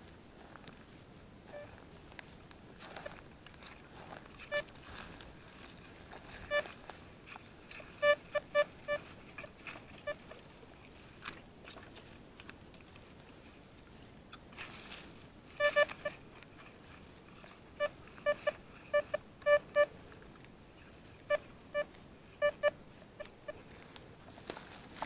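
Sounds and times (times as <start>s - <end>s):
metal detector beeping: 1.5s - 1.8s, 4.4s - 4.8s, 6.4s - 6.8s, 8.0s - 10.4s, 15.6s - 16.2s, 17.8s - 20.0s, 21.3s - 23.7s.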